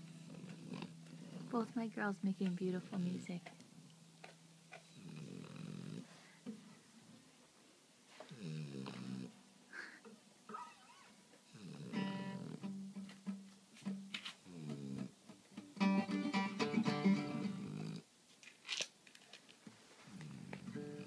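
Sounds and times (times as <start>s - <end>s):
acoustic guitar strumming: 11.9s - 14.2s, 15.6s - 17.7s.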